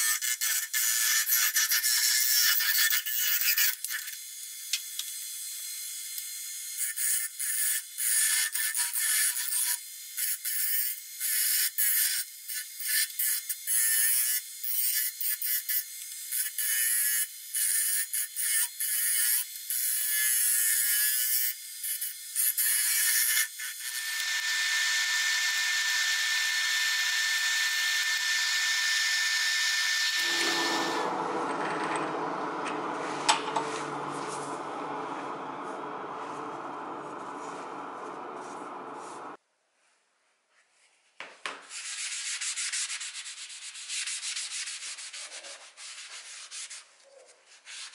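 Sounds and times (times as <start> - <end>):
lathe tool cutting wood: 29.6 - 39.4
low steady hum: 30.2 - 39.4.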